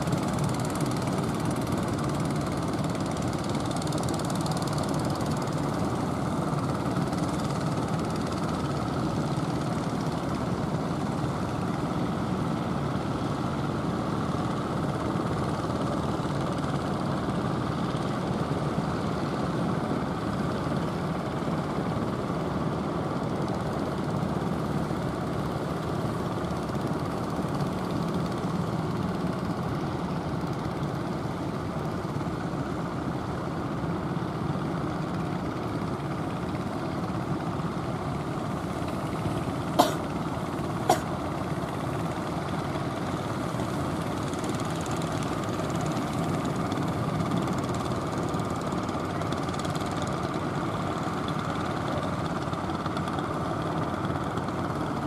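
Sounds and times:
boat engines rumbling: 24.3s - 55.0s.

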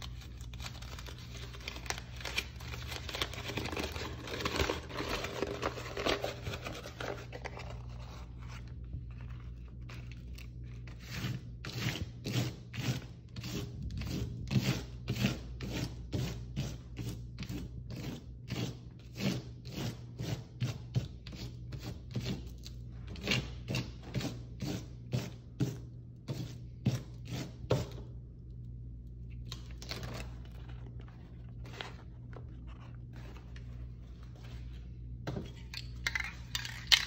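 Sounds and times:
glossy paper crinkling: 0.0s - 10.9s, 29.1s - 35.2s.

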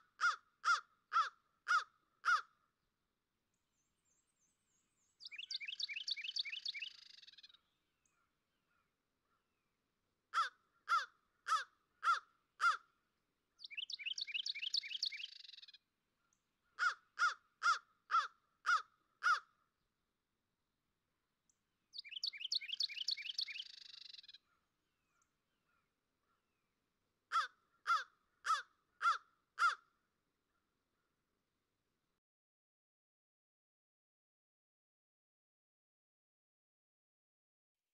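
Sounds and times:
bird clear descending calls: 5.2s - 7.5s, 13.6s - 15.8s, 22.0s - 24.4s.

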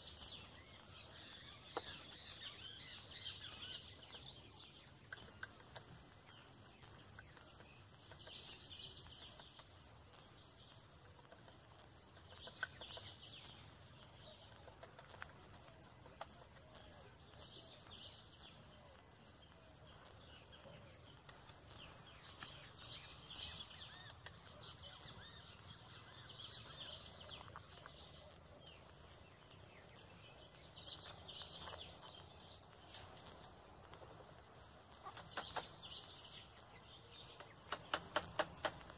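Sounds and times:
high insect trill: 0.0s - 38.9s
small birds chirping: 0.0s - 38.9s.

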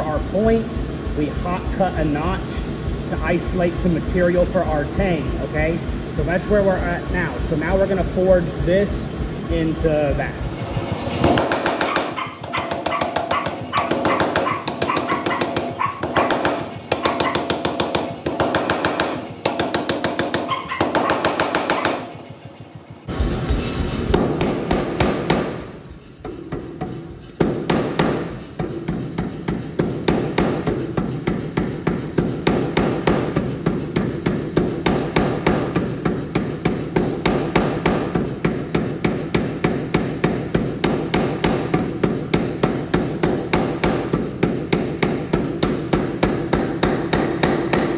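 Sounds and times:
power hammer striking steel: 0.0s - 47.9s.

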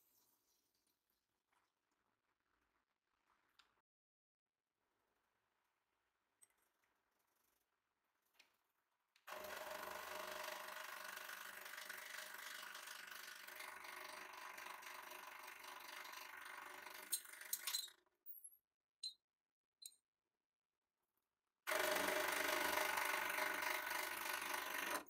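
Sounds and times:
hydraulic press running: 21.7s - 25.0s.

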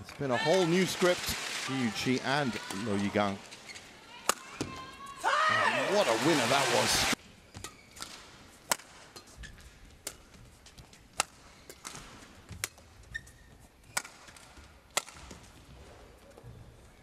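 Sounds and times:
rackets striking shuttlecock: 7.6s - 9.4s, 13.9s - 15.5s.

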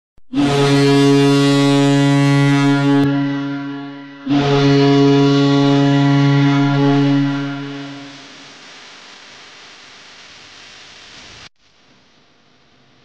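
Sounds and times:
goal horn blasts: 0.3s - 8.4s.

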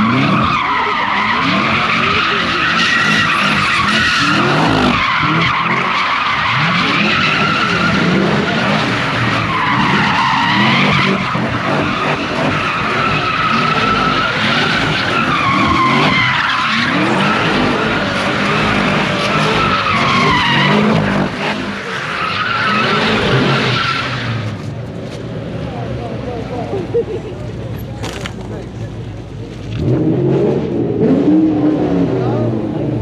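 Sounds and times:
tyres squealing: 0.0s - 24.6s
engines revving: 0.0s - 33.0s.

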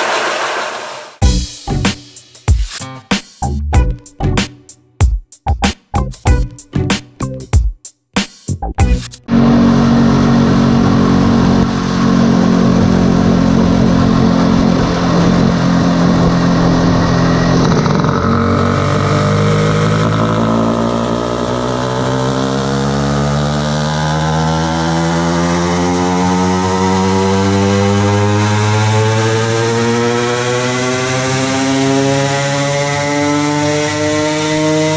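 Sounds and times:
scooter two-stroke engine revving: 9.3s - 34.9s.

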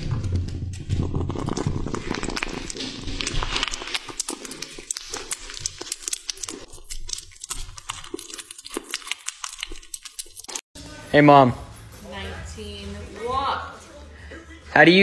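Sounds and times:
kitten licking and chewing: 0.8s - 10.7s.

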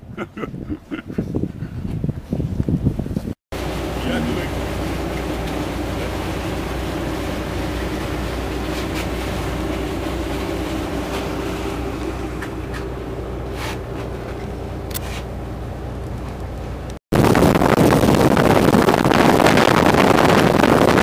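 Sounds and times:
boat engines idling: 3.6s - 17.0s.

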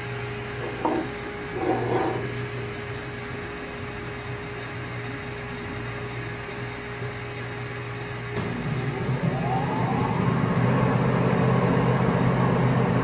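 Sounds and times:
fan humming: 0.0s - 4.4s, 5.3s - 13.0s.

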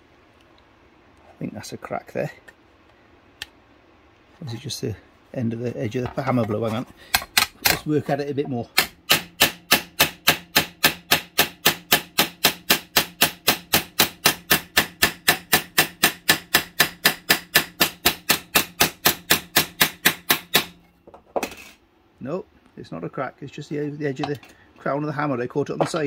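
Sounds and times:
hammer striking steel: 8.8s - 20.9s.

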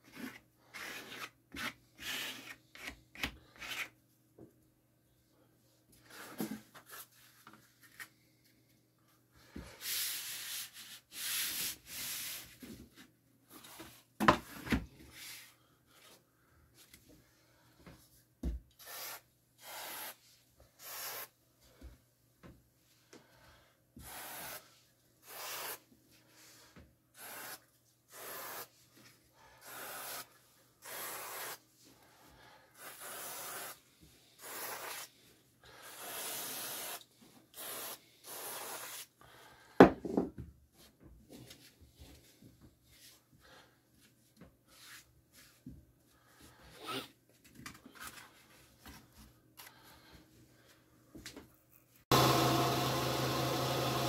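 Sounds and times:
aerosol spray can hissing: 18.8s - 20.2s, 20.8s - 21.3s, 24.1s - 24.6s, 25.2s - 25.8s, 27.2s - 28.7s, 29.6s - 31.6s, 32.8s - 33.8s, 34.4s - 35.1s, 35.8s - 37.0s, 37.6s - 39.0s.

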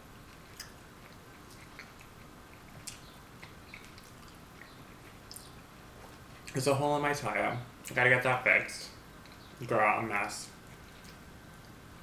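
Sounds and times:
quiet chewing: 0.0s - 6.8s, 8.9s - 9.8s, 10.5s - 11.8s
steady low hiss: 0.0s - 12.0s
mouth clicks and smacks: 0.3s - 6.6s.

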